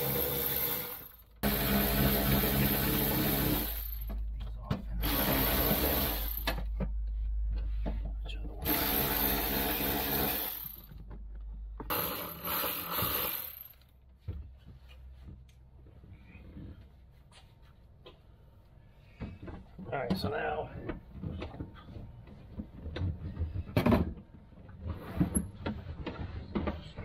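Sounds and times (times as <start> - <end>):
electric ratchet running: 0.0 - 4.1, 5.0 - 6.6, 8.6 - 10.9, 11.9 - 13.8.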